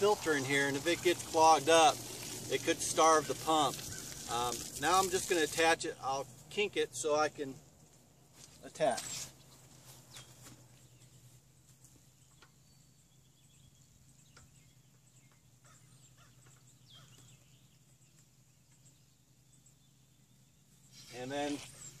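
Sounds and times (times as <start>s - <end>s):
faint bird chirps: 12.0s - 22.0s.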